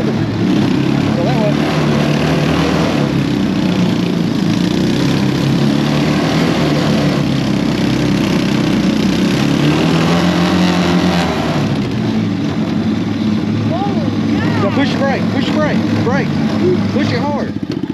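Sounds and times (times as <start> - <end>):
small gasoline engine running: 0.0 - 17.9.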